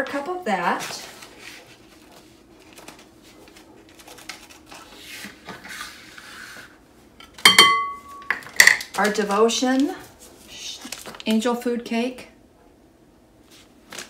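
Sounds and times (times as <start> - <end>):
cup tapping glass bowl: 7.5 - 8.4.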